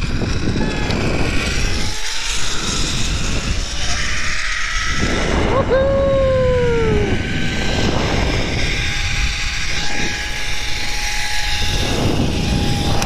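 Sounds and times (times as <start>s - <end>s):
pulley wheels whining: 0.0s - 13.0s
wind rushing on microphone: 0.0s - 13.0s.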